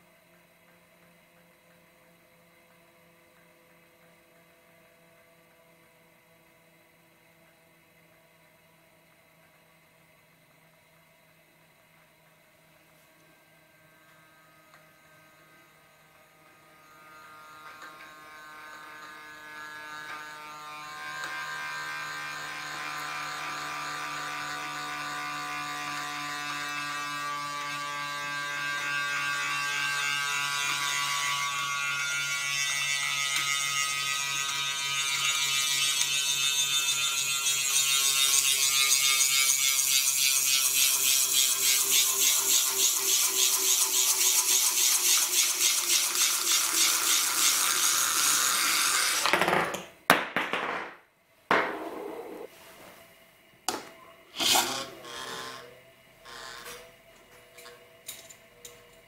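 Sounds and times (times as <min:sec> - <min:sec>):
spinning top humming on glass: 0:32.2 - 0:49.0
spinning top rattling buzz: 0:34.0 - 0:49.8, 0:54.4 - 0:55.7.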